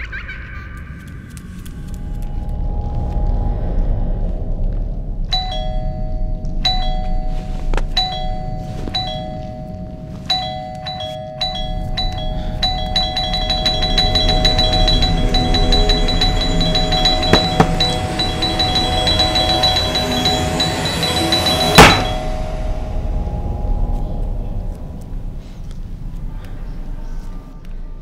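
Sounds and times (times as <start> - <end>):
low rumbling drone: 1.2 - 28.0
bell-like chime notes: 5.4 - 23.9.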